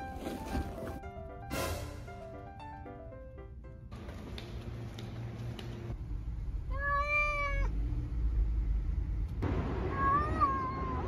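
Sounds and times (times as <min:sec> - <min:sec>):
cat meowing: 0:06.7 - 0:07.7, 0:09.8 - 0:11.0.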